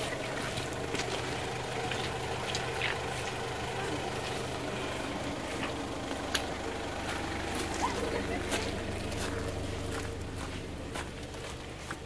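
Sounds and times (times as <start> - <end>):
pickup engine idling: 0.0 - 12.0.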